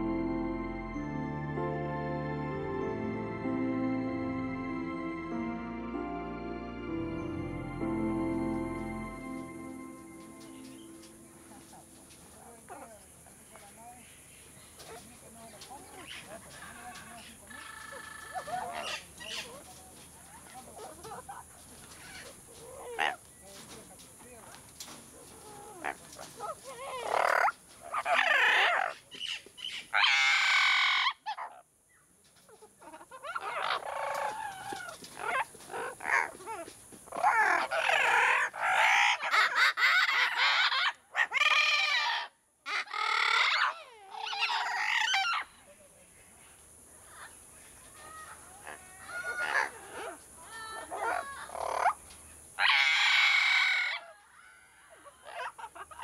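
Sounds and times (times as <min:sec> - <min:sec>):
parrots squawking: 0:26.7 - 0:31.6, 0:32.8 - 0:36.4, 0:37.1 - 0:45.4, 0:52.6 - 0:54.0.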